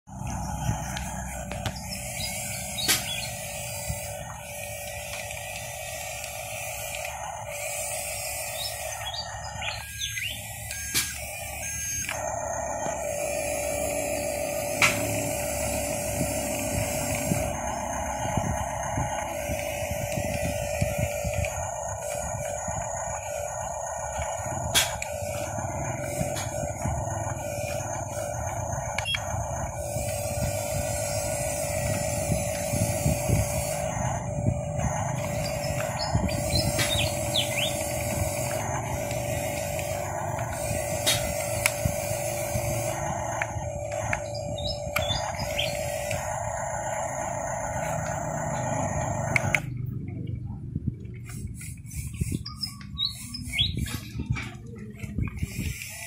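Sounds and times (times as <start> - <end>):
electric toy motors whining: 0.0 - 56.0
high bird chirps: 0.1 - 3.9, 7.8 - 11.8, 35.1 - 38.4, 44.2 - 46.0, 52.2 - 53.9
wheels knocking and scraping on dirt: 0.1 - 11.4, 12.2 - 49.9
sharp clicks: 0.1 - 13.2, 14.7 - 47.0, 47.7 - 49.8.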